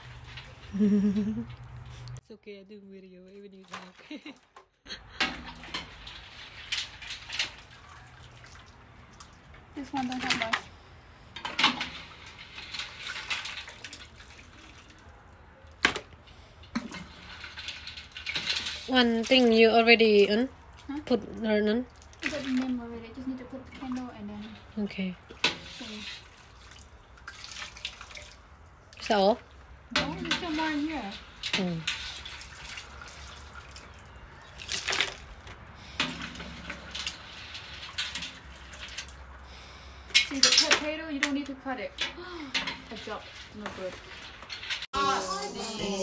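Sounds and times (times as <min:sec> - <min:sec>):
broth sloshing and dripping: 0:00.0 - 0:02.2, 0:03.3 - 0:44.9
short splashes: 0:05.1 - 0:10.7, 0:21.9 - 0:29.3, 0:30.0 - 0:41.4.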